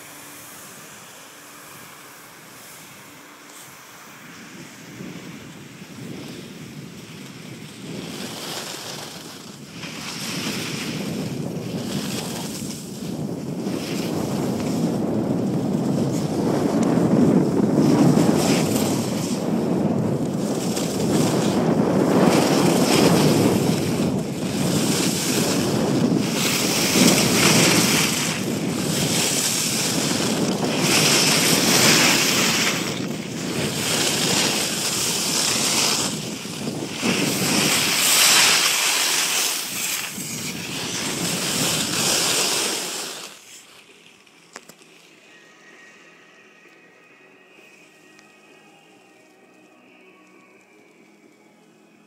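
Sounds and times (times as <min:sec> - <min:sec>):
skis scraping packed snow: 0:00.0 - 0:45.2
wind buffeting microphone: 0:04.1 - 0:42.9.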